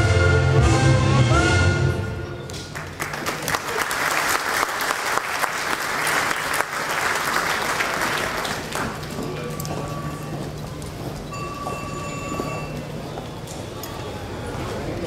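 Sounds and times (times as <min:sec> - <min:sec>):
crowd applauding: 0:02.5 - 0:09.4.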